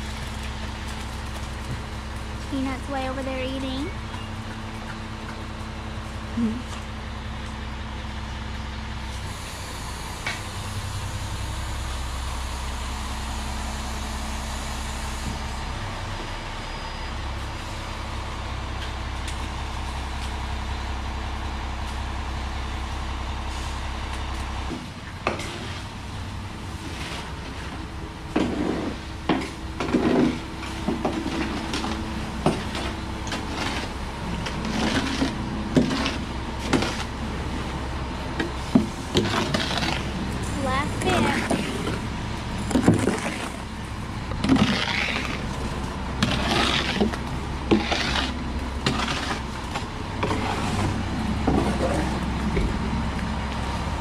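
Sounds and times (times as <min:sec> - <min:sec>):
concrete mixer truck engine running: 0:00.0 - 0:54.0
hoe scraping metal chute: 0:28.4 - 0:37.4, 0:38.4 - 0:52.4.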